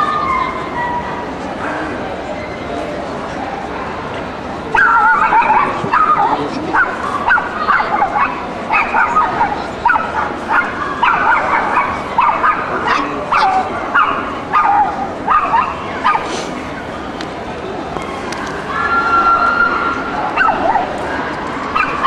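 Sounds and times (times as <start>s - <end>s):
background hubbub: 0.0s - 22.0s
small dog yapping: 4.8s - 16.3s.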